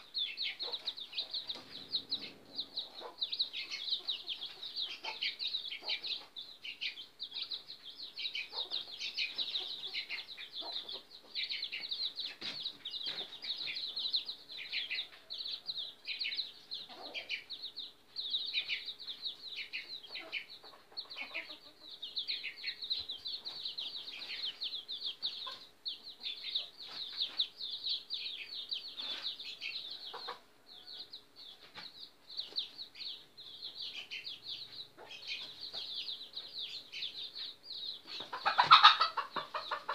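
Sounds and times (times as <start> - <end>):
small birds chirping: 0.0 - 39.9
fowl clucking: 0.5 - 6.1, 20.1 - 21.9, 38.1 - 39.9.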